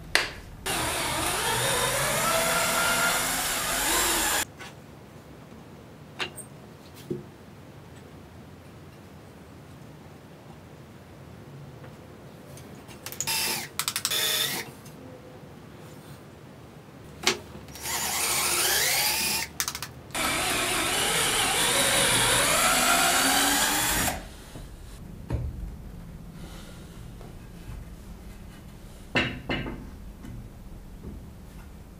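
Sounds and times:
electric drill motor: 0.7 - 4.4, 13.2 - 14.6, 17.7 - 19.5, 20.2 - 24.7.

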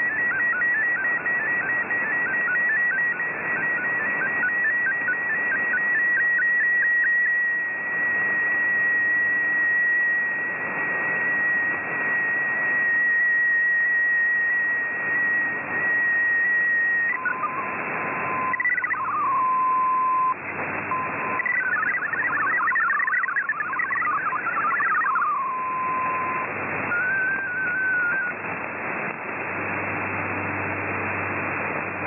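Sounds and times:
short stepping data tones: 0.0 - 28.4
radio static hiss: 0.0 - 32.0
steady high tone: 11.0 - 28.4.

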